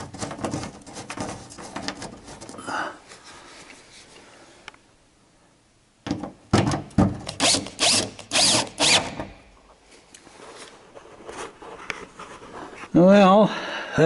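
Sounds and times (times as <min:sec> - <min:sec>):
cordless drill driving screw: 0:07.4 - 0:09.3.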